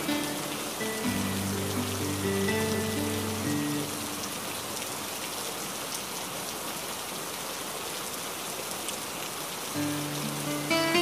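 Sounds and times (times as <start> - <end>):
soft background music: 0.0 - 4.4, 9.8 - 11.0
waterfall rushing: 0.0 - 11.0.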